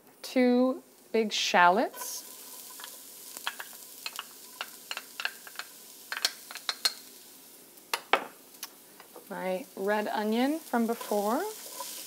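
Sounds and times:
garlic sizzling in oil: 0:00.3 - 0:12.0
utensil tapping metal cup and pan: 0:02.8 - 0:07.0.

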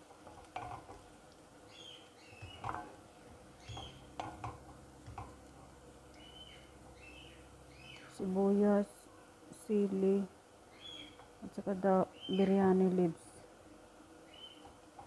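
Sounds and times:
spatula stirring onions in pan: 0:00.0 - 0:08.0
faint high chirps: 0:03.5 - 0:04.2, 0:06.1 - 0:08.2, 0:10.7 - 0:11.3
spatula knocking against pan: 0:03.7 - 0:05.4.

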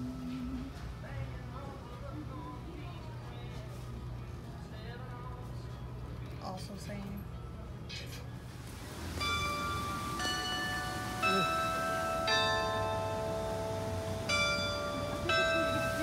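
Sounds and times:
bells ringing slow tune: 0:00.0 - 0:00.9, 0:08.9 - 0:16.0.

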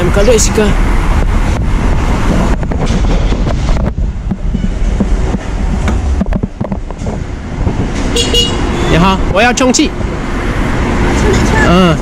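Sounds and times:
uneven clatter and knocks: 0:02.6 - 0:08.1.

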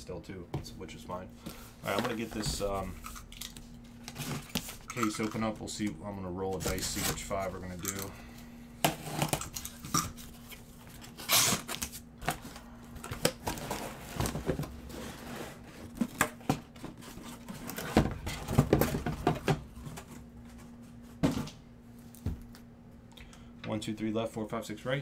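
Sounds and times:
boxes knocking and scraping: 0:01.8 - 0:02.8, 0:13.4 - 0:20.2
cardboard ripping: 0:11.0 - 0:12.0.

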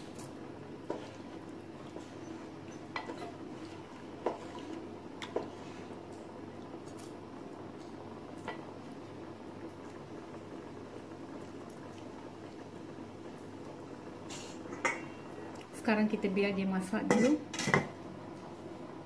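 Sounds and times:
wooden spoon stirring in pot: 0:00.0 - 0:06.3.

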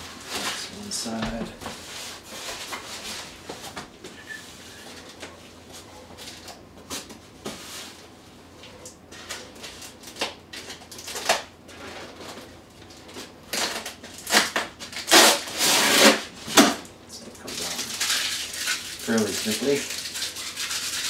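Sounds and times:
packing tape peeling: 0:13.5 - 0:16.8
foam rubbing and scraping: 0:15.1 - 0:16.3.

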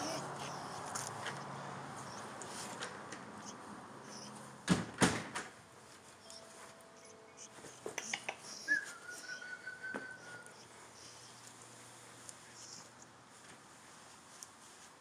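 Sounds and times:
dog whining: 0:00.0 - 0:02.3, 0:03.4 - 0:04.5, 0:06.2 - 0:11.5.

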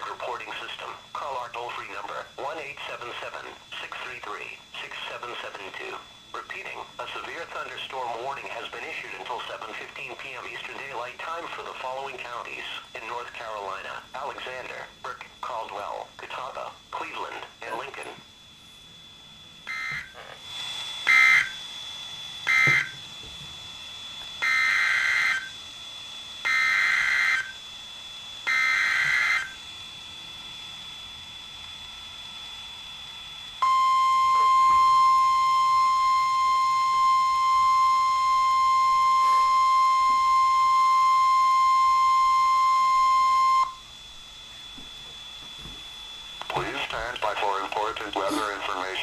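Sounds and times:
warning alarm tone: 0:13.6 - 0:49.0
digital data bursts: 0:46.4 - 0:49.0.

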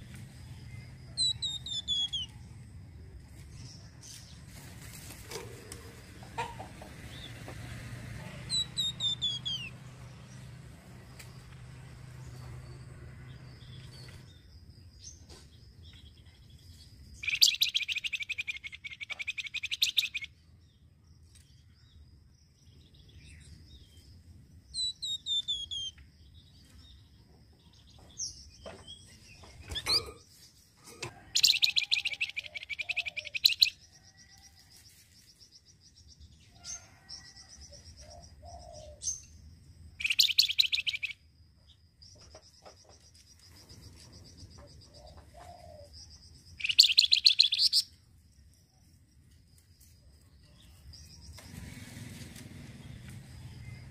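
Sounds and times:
bird chirps: 0:00.0 - 0:02.6, 0:08.4 - 0:10.4, 0:12.2 - 0:20.8, 0:24.7 - 0:34.5, 0:40.0 - 0:48.0
songbird chattering trill: 0:01.1 - 0:02.4, 0:08.5 - 0:09.7, 0:17.2 - 0:20.4, 0:24.8 - 0:26.5, 0:31.3 - 0:33.8, 0:40.0 - 0:41.2, 0:42.0 - 0:48.0
descending whistles: 0:08.5 - 0:09.7.

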